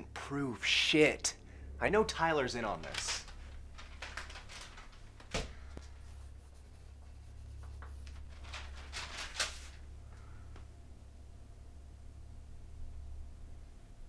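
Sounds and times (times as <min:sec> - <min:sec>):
steady low hum: 0:00.0 - 0:14.0
paper rustling: 0:02.6 - 0:10.3.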